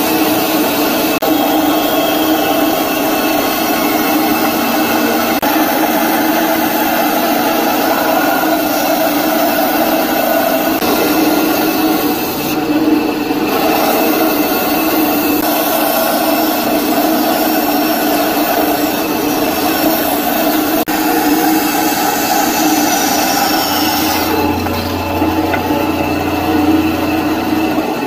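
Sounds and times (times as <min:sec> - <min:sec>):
power saw cutting wood: 0:00.0 - 0:28.0.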